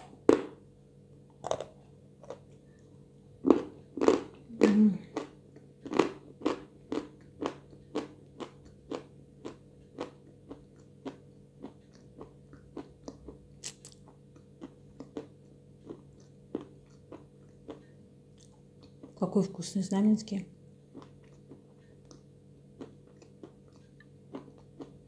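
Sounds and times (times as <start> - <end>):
chalk crunching being chewed: 5.1 - 19.2, 20.9 - 25.0.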